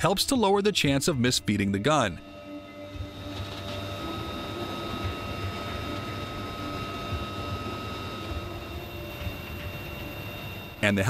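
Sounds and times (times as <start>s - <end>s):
helicopter engine whine: 2.2s - 11.0s
helicopter rotor rumble: 3.0s - 11.0s.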